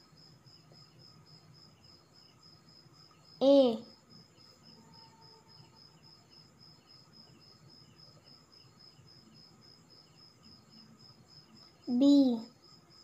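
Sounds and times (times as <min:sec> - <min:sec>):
cricket chirping: 0:00.0 - 0:13.0.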